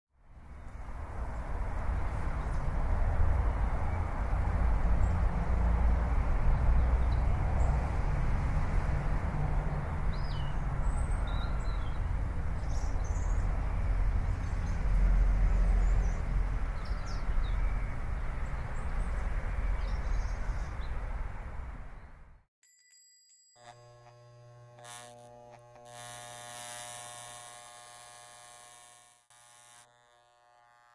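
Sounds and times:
low street rumble: 0.2 - 22.4
small birds chirping: 10.1 - 14.9, 15.6 - 21.1.

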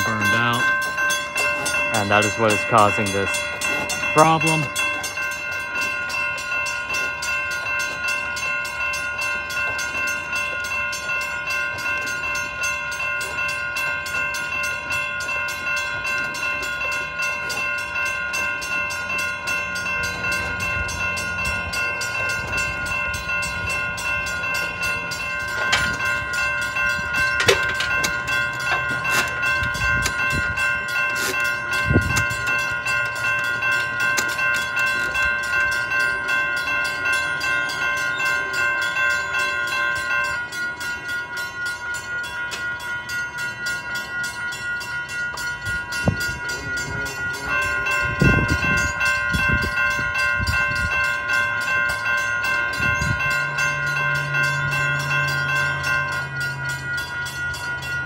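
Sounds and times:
railroad crossing bell ringing: 0.0 - 58.0.

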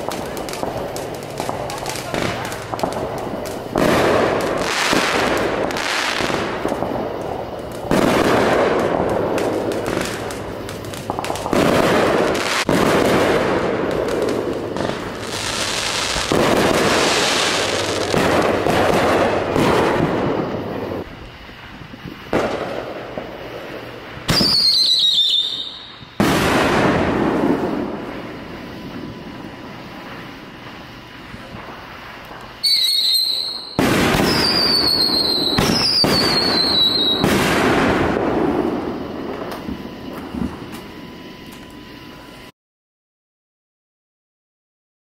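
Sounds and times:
fireworks banging and crackling: 0.0 - 42.2
firework whistle falling in pitch: 24.3 - 26.8, 32.6 - 38.1.

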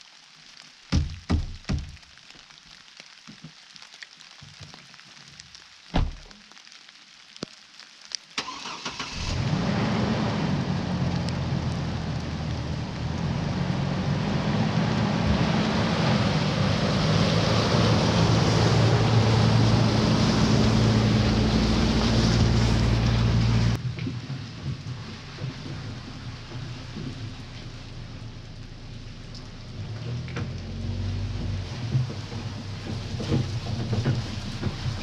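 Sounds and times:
clicks before engine start: 8.4 - 9.4.

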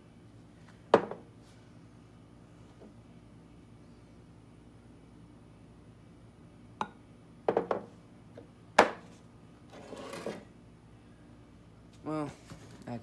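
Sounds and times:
glass cup knocking on table: 0.9 - 1.2, 7.5 - 7.9.

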